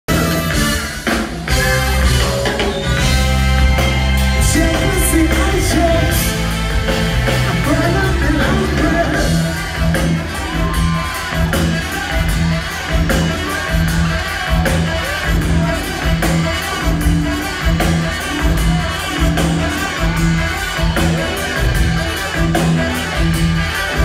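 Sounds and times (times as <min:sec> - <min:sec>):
live reggae band: 0:00.1 - 0:24.0
person singing lead: 0:07.4 - 0:09.6.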